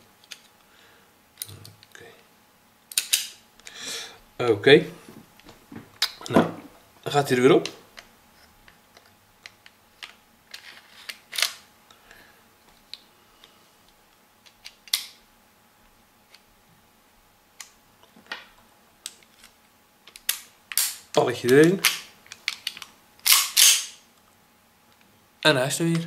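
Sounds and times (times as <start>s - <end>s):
metal pistol slide clicks: 23.2s - 23.9s.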